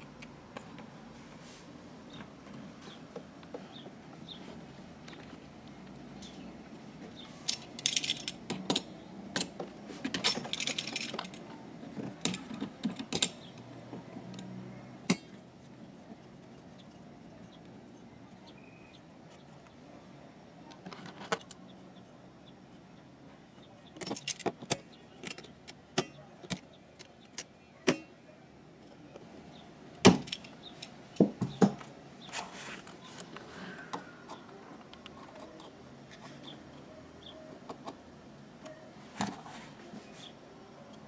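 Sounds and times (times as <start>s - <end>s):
metal tools clicking and tapping: 7.5s - 13.7s, 15.1s - 15.4s, 24.0s - 28.1s, 30.2s - 31.8s.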